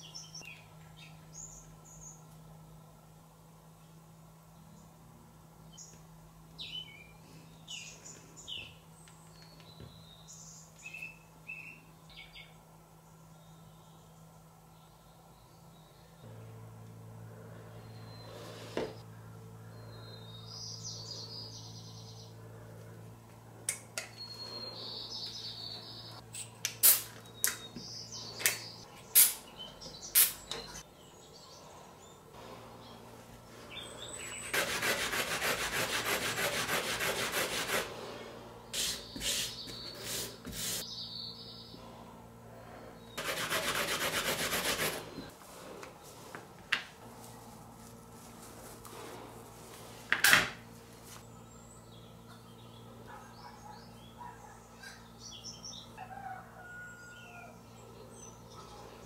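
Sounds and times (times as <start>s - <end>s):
stick rubbing on sanding pad: 34.2s - 38.0s, 43.2s - 45.3s.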